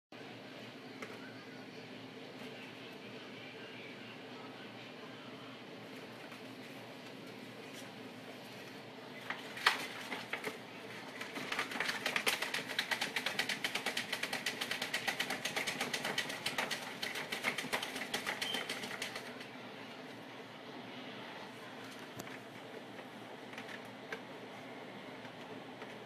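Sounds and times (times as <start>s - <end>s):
puppy paws scratching in a bag: 11.2s - 19.4s.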